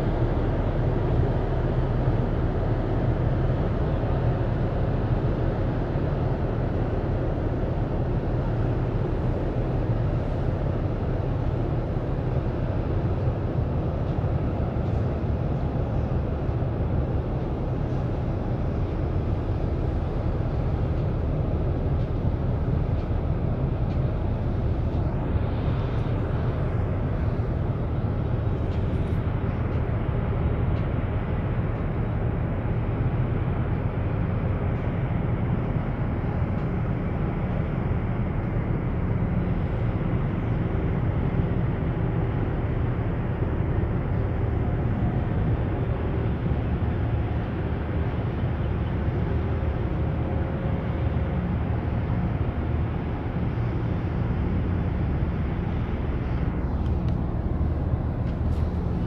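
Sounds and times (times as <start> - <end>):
ship engine rumble: 0.0 - 59.0.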